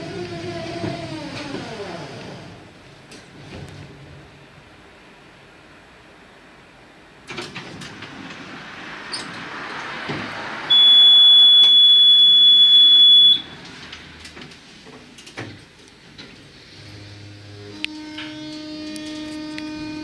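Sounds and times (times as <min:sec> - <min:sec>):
high door warning beep: 0:10.7 - 0:13.6.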